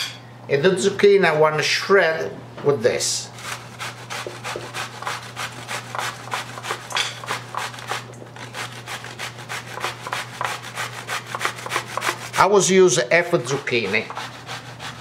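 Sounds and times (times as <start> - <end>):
zucchini grating on metal grater: 3.3 - 15.0.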